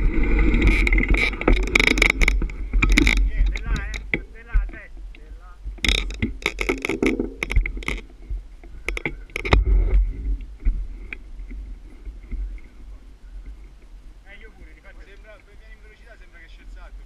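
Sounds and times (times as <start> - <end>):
steady low rumble: 0.0 - 17.0
sharp clicks knocks and scrapes: 0.4 - 11.6.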